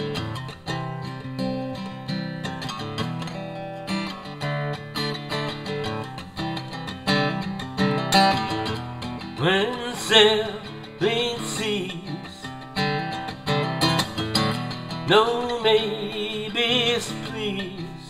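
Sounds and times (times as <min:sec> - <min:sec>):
acoustic guitar strumming: 0:00.0 - 0:18.0
person singing: 0:09.4 - 0:12.6, 0:15.1 - 0:18.0.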